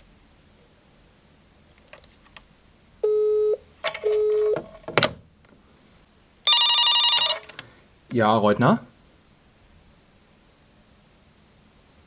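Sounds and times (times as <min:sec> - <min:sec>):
telephone busy tone beeps: 0:03.0 - 0:04.6, 0:06.5 - 0:07.4
telephone ringing: 0:03.0 - 0:04.6, 0:06.5 - 0:07.6.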